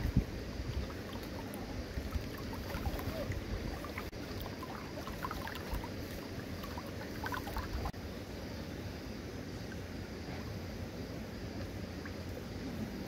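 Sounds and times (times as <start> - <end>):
wind buffeting microphone: 0.0 - 5.9.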